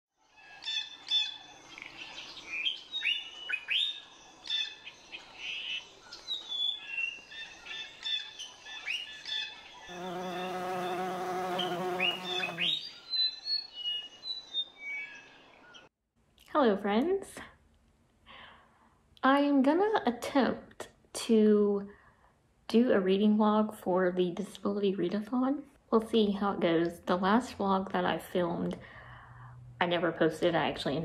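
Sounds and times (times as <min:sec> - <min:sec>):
songbirds chirping: 0:00.2 - 0:15.9.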